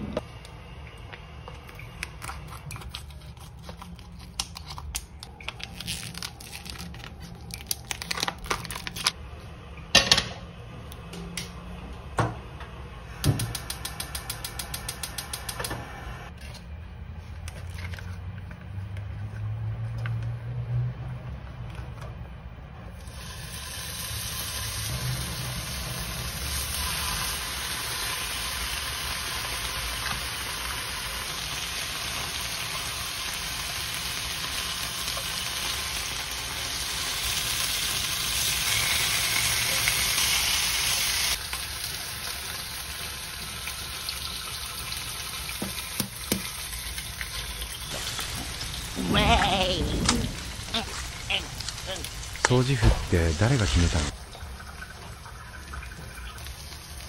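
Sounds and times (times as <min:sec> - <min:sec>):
plastic packaging crinkling: 0:02.4 - 0:09.2
bacon sizzling in a pan: 0:23.2 - 0:49.8.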